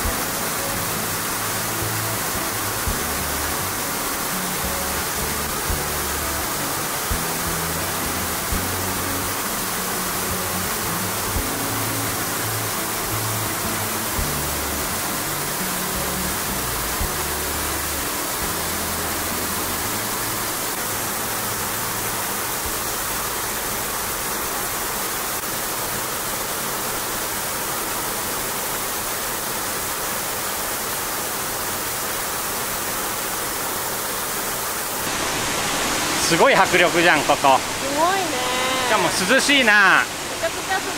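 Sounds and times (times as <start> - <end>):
low music notes: 0.0 - 20.8
waterfall crashing onto rock: 18.8 - 40.9.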